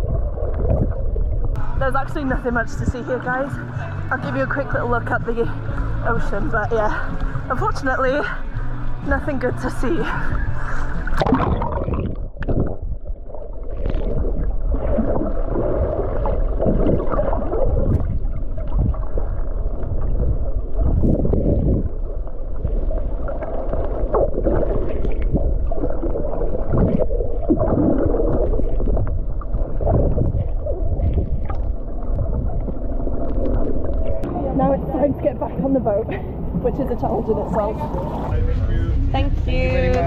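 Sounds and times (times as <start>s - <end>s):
water splashes: 0.0s - 38.4s
water washing along hull: 0.0s - 40.0s
boat engine running: 16.4s - 40.0s.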